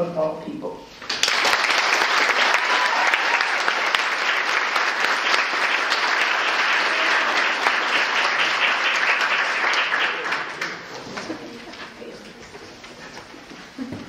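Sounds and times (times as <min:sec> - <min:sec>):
audience applauding: 0:01.0 - 0:11.4.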